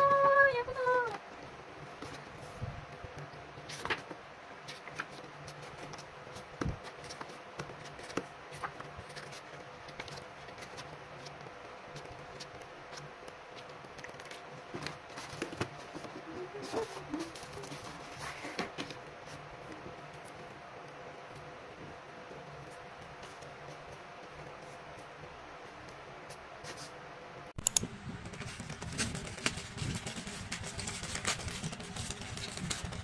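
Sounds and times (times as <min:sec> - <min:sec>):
paper pages riffling: 0:28.2 - 0:33.0.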